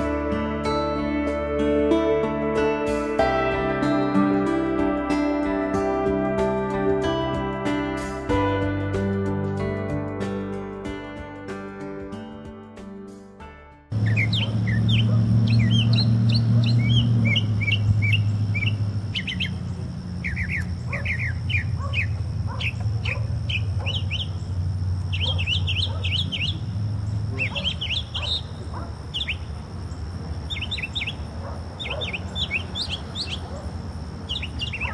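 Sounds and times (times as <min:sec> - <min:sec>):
bird singing high chirps: 0:14.0 - 0:34.9.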